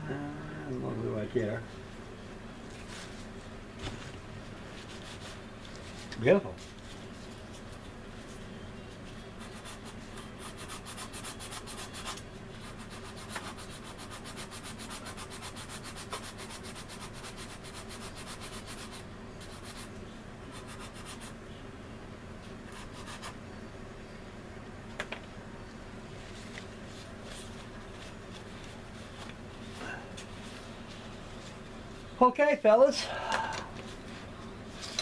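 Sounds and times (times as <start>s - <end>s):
sanding stick scraping resin: 9.4s - 19.9s, 20.5s - 21.3s, 22.7s - 23.4s.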